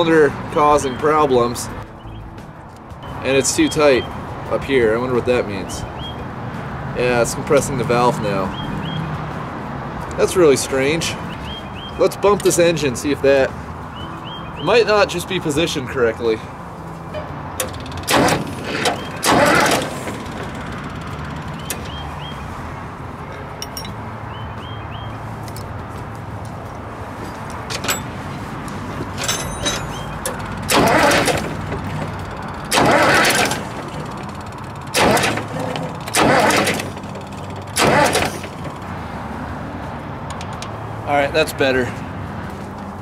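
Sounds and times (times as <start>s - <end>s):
engine starter cranking: 17.6s - 22.1s, 29.2s - 38.9s.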